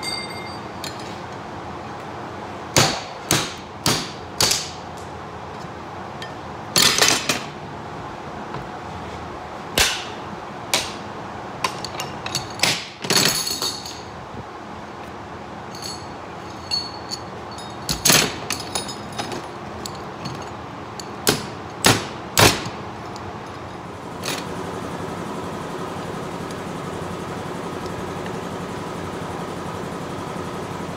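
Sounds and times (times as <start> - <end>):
hammer clanking on steel chain: 0.0 - 1.2, 11.6 - 14.1, 15.7 - 21.6
machine hum: 21.6 - 30.9.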